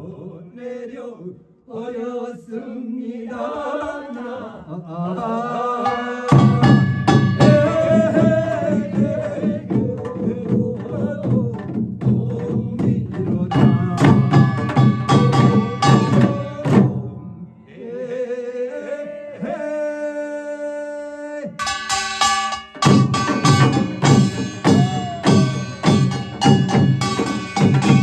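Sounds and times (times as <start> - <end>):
person singing: 3.3 - 17.1, 24.6 - 26.8
loud fast drums and gong: 5.8 - 17.3, 21.6 - 28.0.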